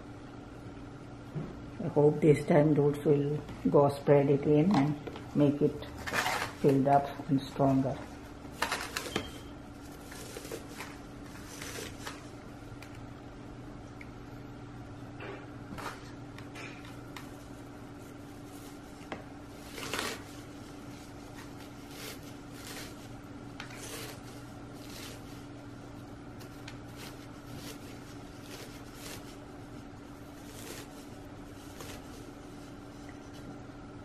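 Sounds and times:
steady hum: 0:00.0 - 0:34.0
potting mix rustling and crunching: 0:03.9 - 0:13.0, 0:16.9 - 0:33.6.

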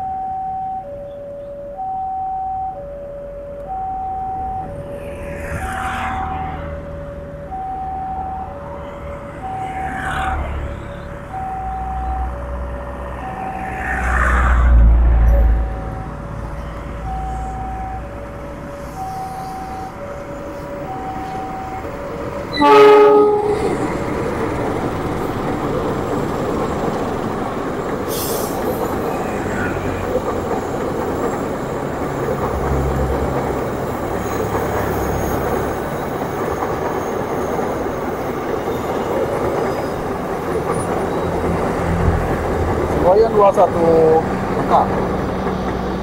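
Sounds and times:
level crossing alarm: 0:00.0 - 0:14.3, 0:15.2 - 0:28.0
train wheels rumbling on rails: 0:04.5 - 0:46.0
train horn blast: 0:22.5 - 0:24.0.

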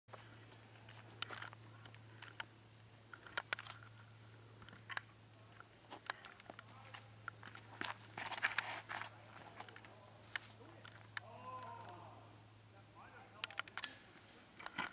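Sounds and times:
insects droning: 0:00.1 - 0:14.9
footsteps on concrete: 0:05.8 - 0:10.6.

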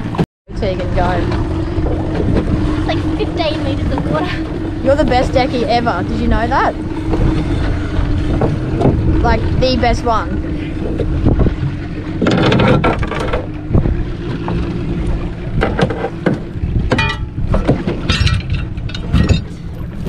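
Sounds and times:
outboard motor humming: 0:00.0 - 0:20.0
wind on microphone: 0:00.0 - 0:20.0
knocks and thumps: 0:08.3 - 0:09.1, 0:12.2 - 0:14.6, 0:15.6 - 0:20.0.

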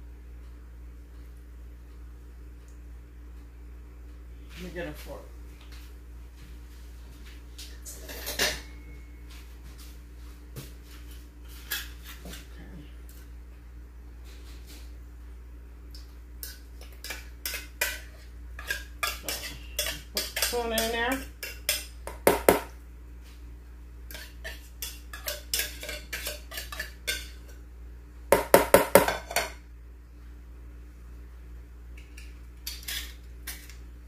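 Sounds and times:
clinks and scrapes: 0:07.9 - 0:08.8, 0:32.2 - 0:33.8.

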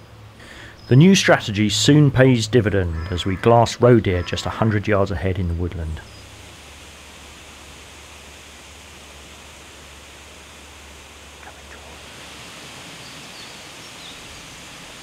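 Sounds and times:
background hiss: 0:00.0 - 0:15.0
low steady hum: 0:00.0 - 0:15.0.

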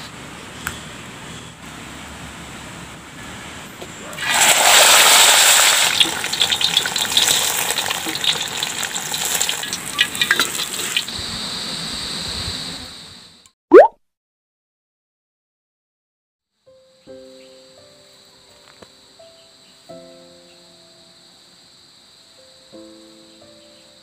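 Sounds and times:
oil sizzling and crackling in a wok: 0:04.2 - 0:11.2.

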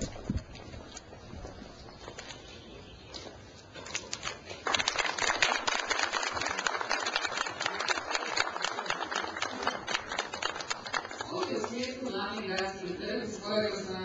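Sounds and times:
crowd applauding: 0:04.6 - 0:11.7.

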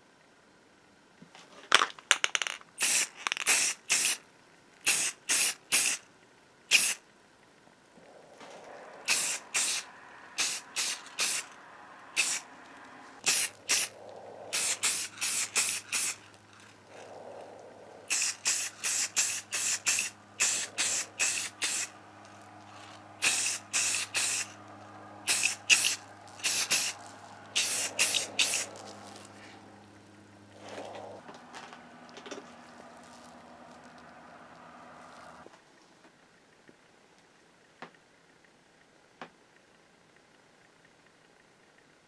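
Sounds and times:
spray paint can hissing bursts: 0:02.8 - 0:04.2, 0:04.8 - 0:06.0, 0:06.7 - 0:07.0, 0:09.0 - 0:11.5, 0:12.1 - 0:12.5, 0:13.2 - 0:13.9, 0:14.5 - 0:16.2, 0:18.1 - 0:22.0, 0:23.2 - 0:24.6, 0:25.3 - 0:28.9.

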